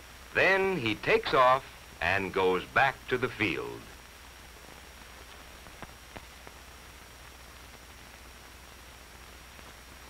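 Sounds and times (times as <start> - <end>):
film soundtrack hiss and hum: 0.0 - 10.0
faint clicks: 5.2 - 6.6.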